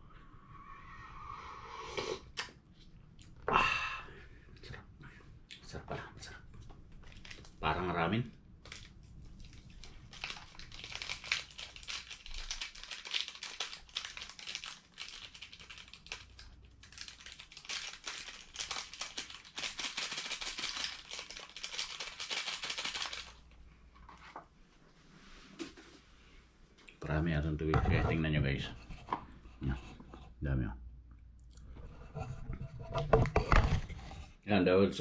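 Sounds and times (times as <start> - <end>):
plastic packet crinkling: 7.0 - 7.8, 8.6 - 23.6.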